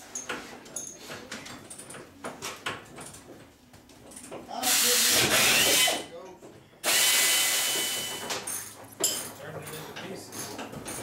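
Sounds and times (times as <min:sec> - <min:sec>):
air ratchet hissing and whining: 0:04.6 - 0:06.1, 0:06.8 - 0:08.3.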